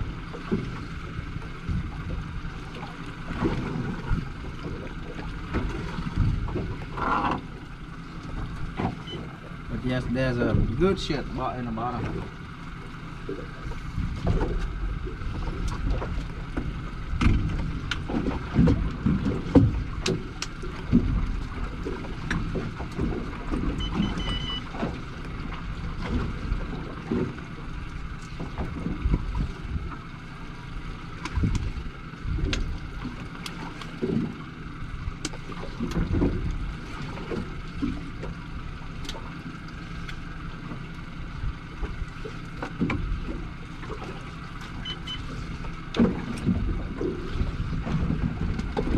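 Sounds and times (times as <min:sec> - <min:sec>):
water against hull: 0:00.0 - 0:48.9
faint high beep: 0:23.8 - 0:24.7, 0:44.8 - 0:45.3.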